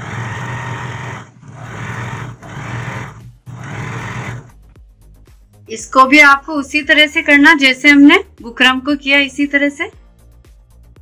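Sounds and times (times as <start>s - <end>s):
electric sewing machine stitching: 0.0s - 4.5s.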